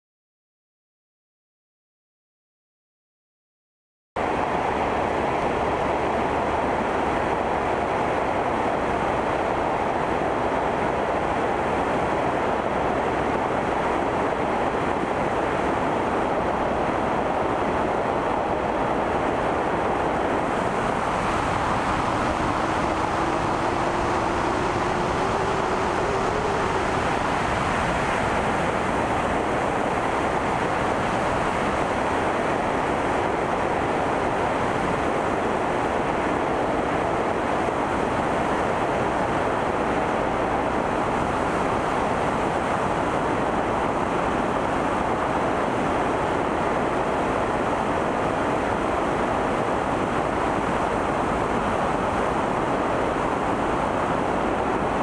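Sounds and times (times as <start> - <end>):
aircraft engine and propeller: 4.2 - 55.0
wind buffeting microphone: 4.2 - 55.0
faint rising whine: 19.7 - 32.7.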